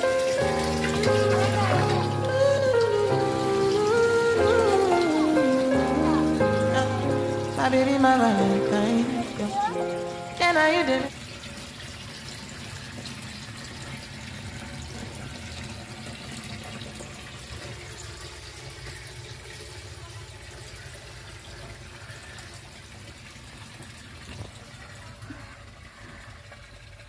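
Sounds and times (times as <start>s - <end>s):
water splashing into fish tank: 10.4s - 27.0s.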